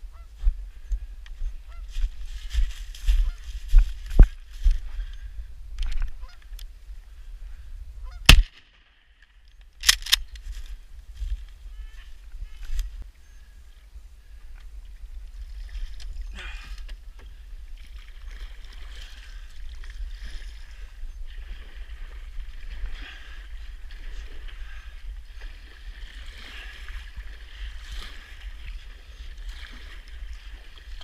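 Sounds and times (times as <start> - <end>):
paddle strokes in water: 14.3 - 31.0.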